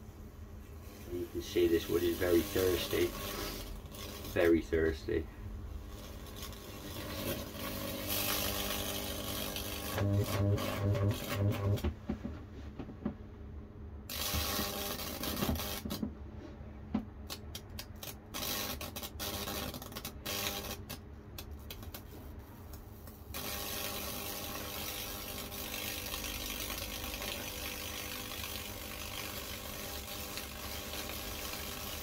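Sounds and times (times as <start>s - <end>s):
electrodes buzzing and hissing: 0.8s - 5.2s, 5.8s - 11.8s, 14.1s - 16.0s, 18.0s - 21.0s, 23.3s - 32.0s.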